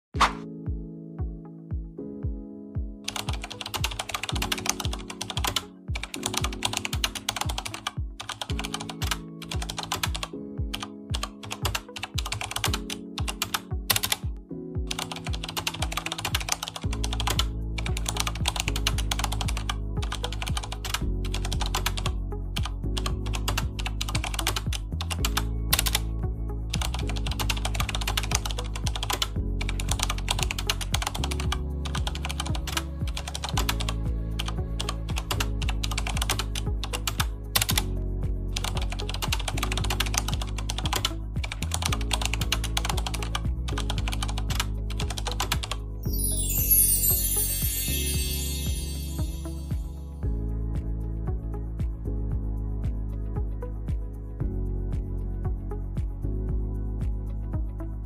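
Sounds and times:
background music with held chords: 0:00.2 - 0:58.0
rapid keyboard typing: 0:03.1 - 0:26.1, 0:26.7 - 0:37.9, 0:38.5 - 0:45.9
deep bass: 0:16.8 - 0:58.0.

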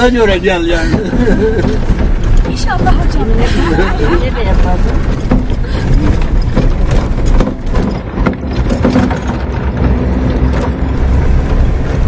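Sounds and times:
knocks and rattles from bumps: 0:00.0 - 0:12.0
vehicle engine rumble: 0:00.0 - 0:12.0.

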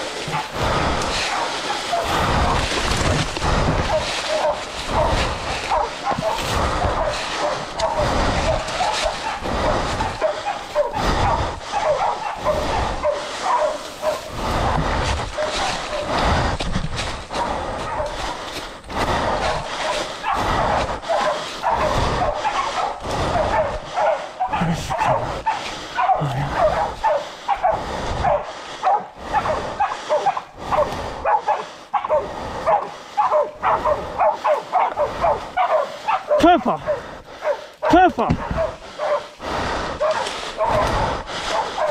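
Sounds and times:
footsteps through dry leaves: 0:00.0 - 0:07.6
dogs barking: 0:00.0 - 0:41.9.

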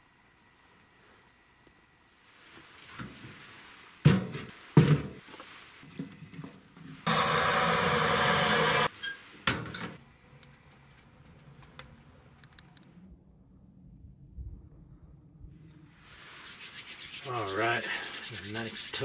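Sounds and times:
steady hiss: 0:16.0 - 0:19.0.

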